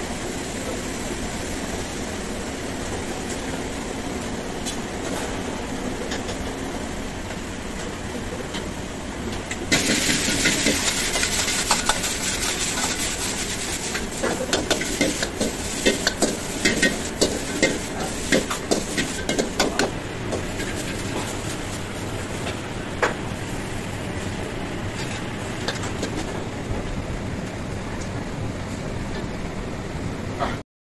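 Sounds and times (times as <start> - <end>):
gas burner rumble: 0.0 - 30.6
food sizzling in a wok: 8.6 - 26.3.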